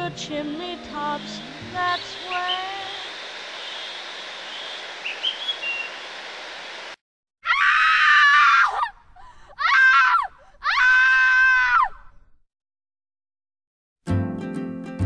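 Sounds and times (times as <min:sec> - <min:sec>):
faint steady hiss: 0:00.0 - 0:07.0
woman screaming: 0:07.4 - 0:12.1.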